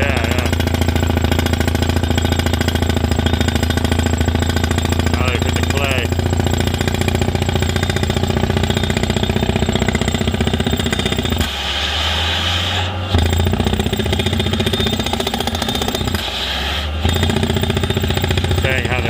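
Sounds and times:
engine droning: 0:00.0 - 0:19.0
rock drill hammering: 0:00.0 - 0:19.0.

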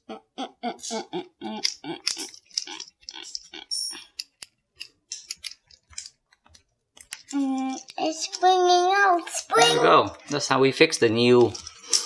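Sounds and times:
screw creaking and squeaking: 0:00.9 - 0:04.4.

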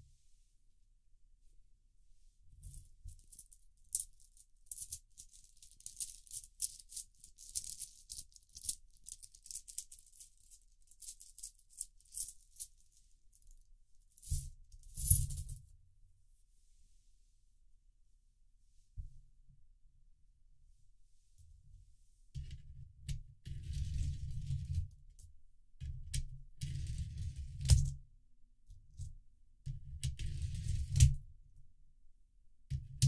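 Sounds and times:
coins clinking in a cloth bag: 0:02.7 - 0:15.6
coins tipped onto a towel: 0:14.2 - 0:15.6.

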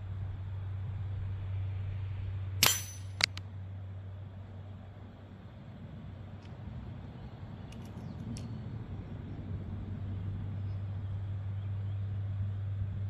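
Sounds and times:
low rumble: 0:00.0 - 0:13.0
pellet striking steel target: 0:02.6 - 0:03.4.

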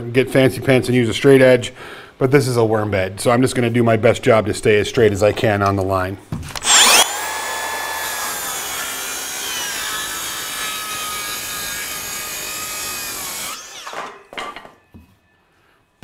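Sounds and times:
circular saw cutting wood: 0:06.6 - 0:14.3.

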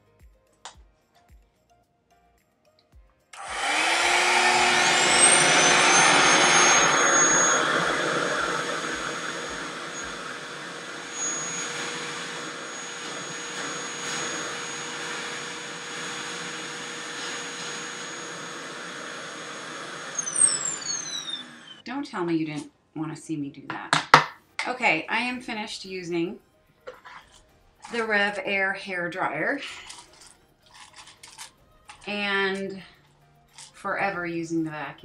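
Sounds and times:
hair dryer suction motor whining: 0:03.4 - 0:21.8.

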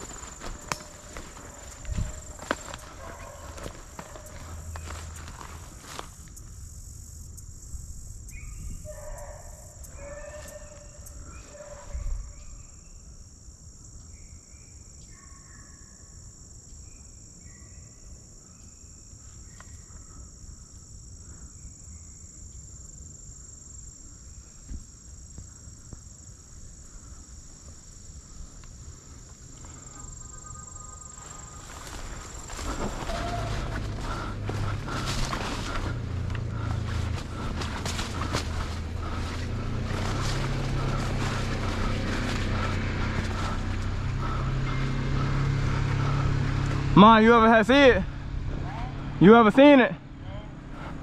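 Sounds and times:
distant hounds baying: 0:00.0 - 0:06.0, 0:08.8 - 0:12.7, 0:31.3 - 0:49.4
insects buzzing: 0:00.0 - 0:51.0.

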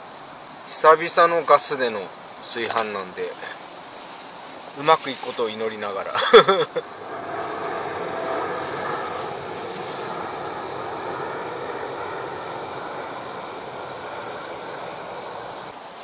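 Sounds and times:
gas stove burner hissing: 0:06.8 - 0:16.0
rice boiling: 0:06.8 - 0:16.0.

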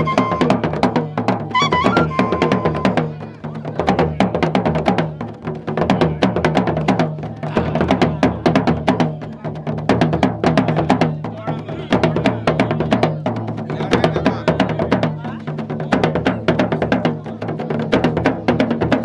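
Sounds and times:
drums beaten in fast rhythm: 0:00.0 - 0:19.0.

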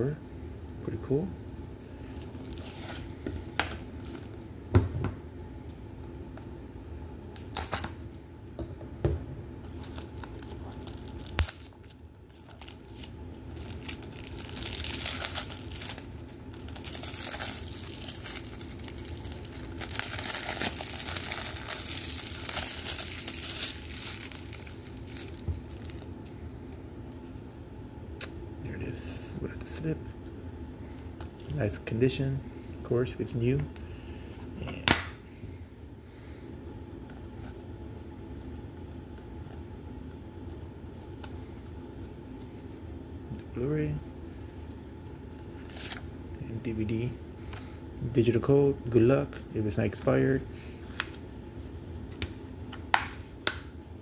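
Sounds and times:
plastic shrink wrap tearing: 0:02.4 - 0:04.4, 0:07.4 - 0:08.1, 0:09.7 - 0:26.1.

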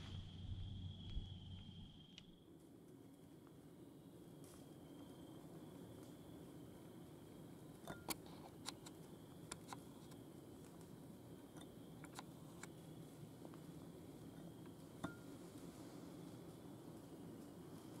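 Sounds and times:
background hiss: 0:00.0 - 0:18.0
small sharp clicks and crackles: 0:07.8 - 0:11.0, 0:12.0 - 0:13.7
faint steady high tone: 0:14.7 - 0:16.1.

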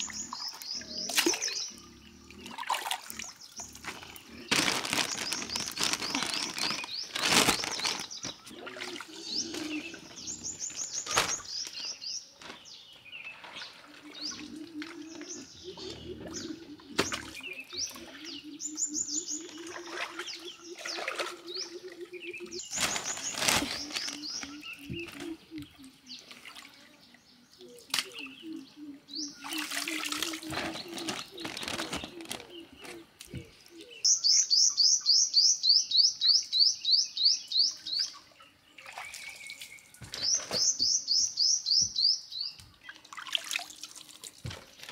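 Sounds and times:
water splashing in a basin: 0:00.0 - 0:01.7, 0:02.4 - 0:10.2, 0:19.4 - 0:22.0, 0:22.7 - 0:27.0, 0:29.4 - 0:32.3, 0:38.8 - 0:40.7, 0:42.8 - 0:44.9
small birds chirping: 0:00.0 - 0:44.9.

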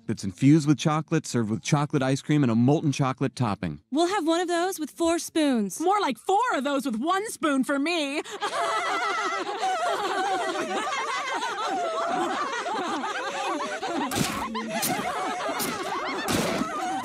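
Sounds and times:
women laughing: 0:08.0 - 0:17.0.

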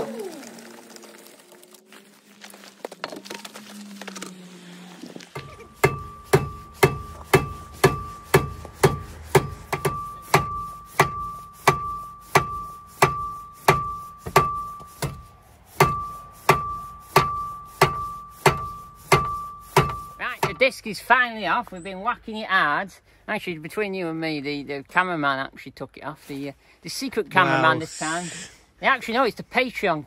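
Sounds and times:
hammer striking ringing brake disc: 0:05.4 - 0:20.6.

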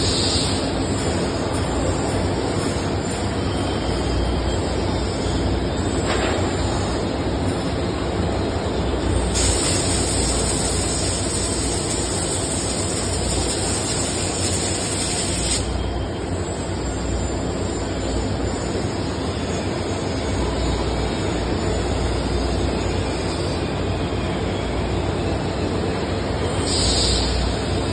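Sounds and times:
hiss: 0:00.0 - 0:00.7, 0:09.2 - 0:15.8, 0:26.5 - 0:27.8.

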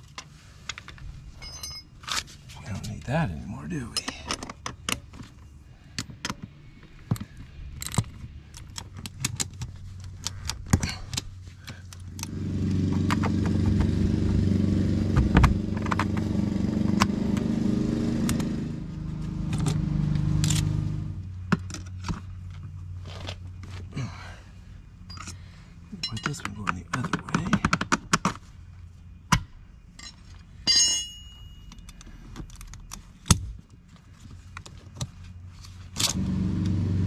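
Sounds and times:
wrench and bolts clinking: 0:00.7 - 0:02.3, 0:25.1 - 0:25.4, 0:26.0 - 0:27.1, 0:30.0 - 0:32.8
engine drone: 0:12.0 - 0:21.4, 0:36.0 - 0:37.0.

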